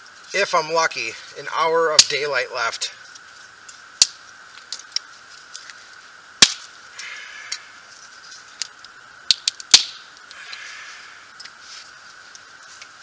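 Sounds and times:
campfire wood cracking and popping: 1.4s - 10.7s.

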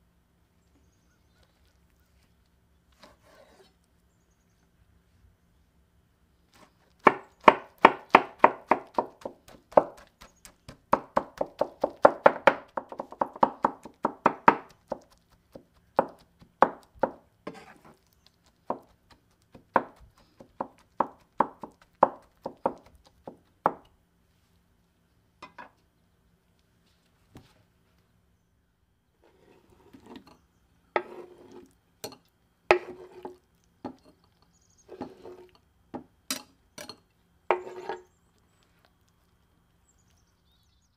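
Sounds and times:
knife chopping on wooden board: 7.0s - 17.8s, 18.6s - 23.9s, 31.0s - 31.6s, 32.7s - 34.0s, 37.5s - 38.0s.

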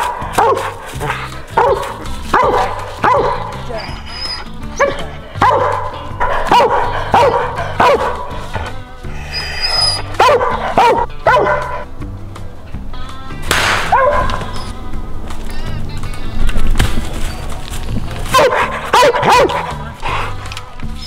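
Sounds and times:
dog barking: 0.0s - 3.7s, 4.8s - 8.4s, 10.0s - 11.9s, 13.9s - 14.5s, 18.3s - 20.3s
background music: 0.0s - 21.0s.

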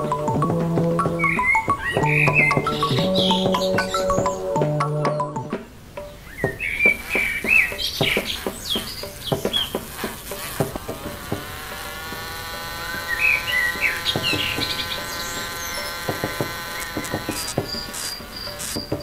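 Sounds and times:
small birds chirping: 0.0s - 19.0s
small electric motor whine: 7.0s - 19.0s.

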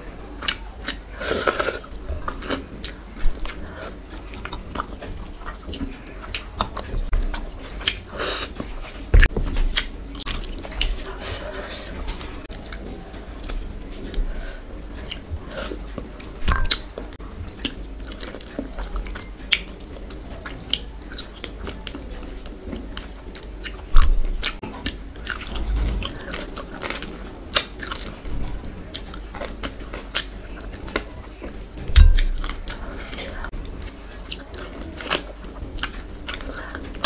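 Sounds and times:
wet chewing: 0.3s - 37.0s.

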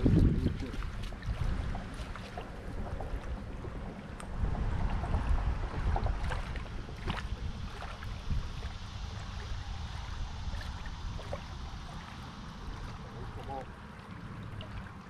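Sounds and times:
water lapping at shoreline: 0.0s - 15.0s
wind rumbling on microphone: 0.0s - 15.0s.

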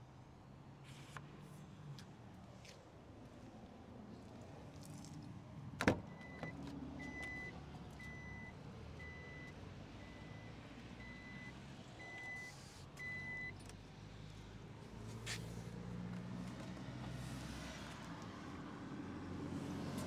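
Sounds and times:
car warning chime beeping: 6.1s - 13.6s.

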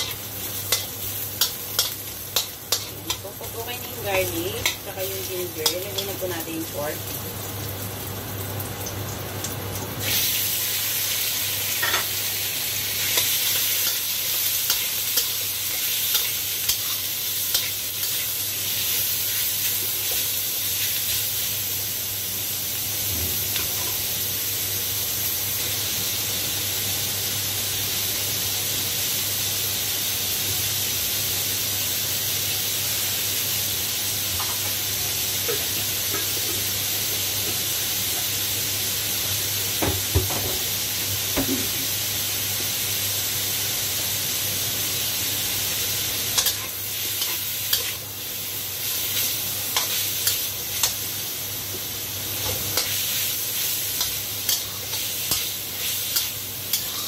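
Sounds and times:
spatula scraping a wok: 0.0s - 3.4s, 46.3s - 48.1s, 52.4s - 57.0s
meat sizzling in hot oil: 0.0s - 57.0s.

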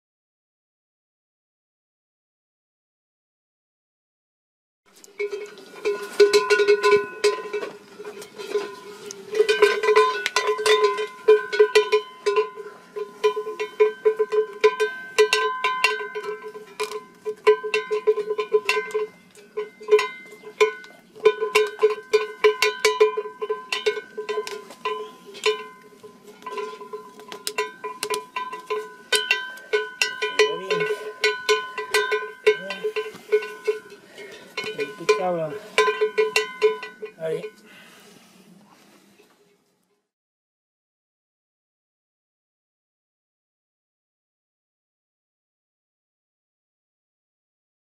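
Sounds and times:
sheep bell clanking: 5.0s - 38.0s.

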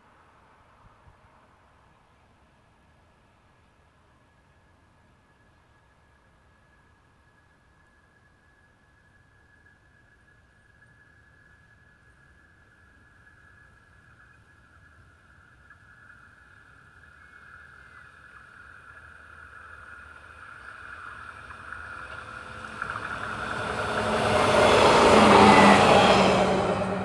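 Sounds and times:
train passing: 19.9s - 27.0s.

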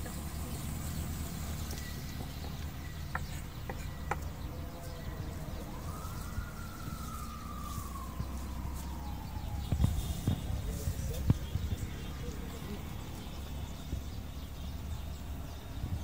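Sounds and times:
distant siren: 4.1s - 14.3s
steady low rumble: 4.2s - 16.0s.

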